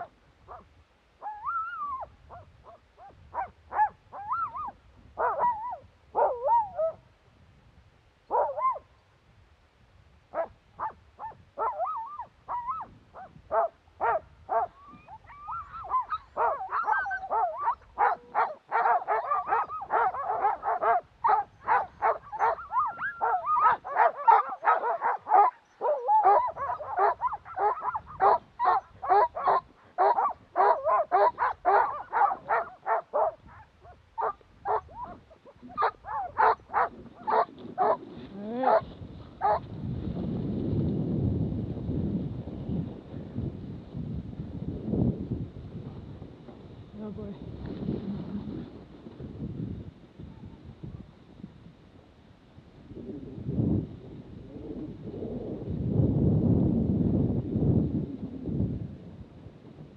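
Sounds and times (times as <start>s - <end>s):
sled dogs barking and yipping: 1.2s - 7.0s, 8.3s - 8.9s, 10.3s - 39.7s.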